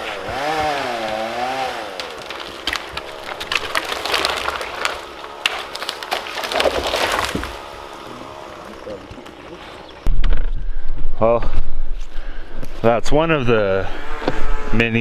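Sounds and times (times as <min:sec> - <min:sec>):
wood cracking and snapping: 0:00.4 - 0:07.7.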